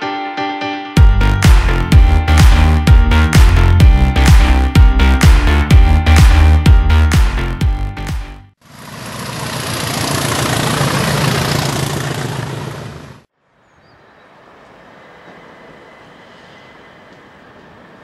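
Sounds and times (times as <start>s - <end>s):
train passing at speed: 8.7s - 13.2s, 14.3s - 18.0s
electric train hum with whine: 14.0s - 18.0s.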